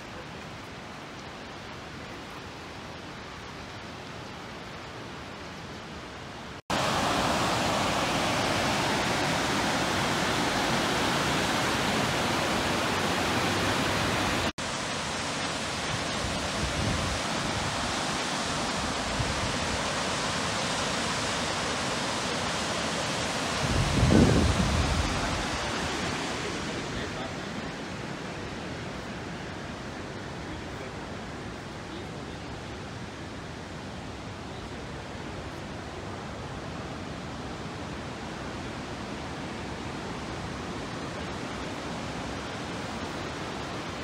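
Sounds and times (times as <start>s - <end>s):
river and waterfall rushing: 0.0s - 44.0s
wind buffeting microphone: 16.0s - 18.0s, 23.5s - 26.7s.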